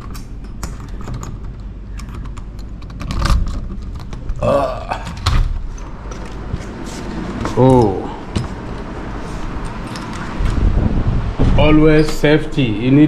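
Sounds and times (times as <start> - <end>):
wooden door creaking: 5.0 - 6.2
footsteps and handling noise: 5.2 - 10.8
heavy thump: 11.1 - 11.8.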